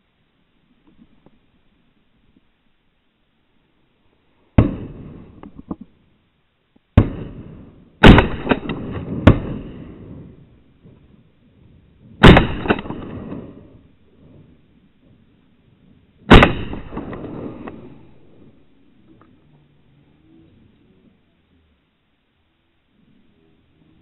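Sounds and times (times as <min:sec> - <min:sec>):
shotgun blasts: 0:04.6 - 0:05.6, 0:07.0 - 0:10.4, 0:12.2 - 0:13.9, 0:16.3 - 0:18.5.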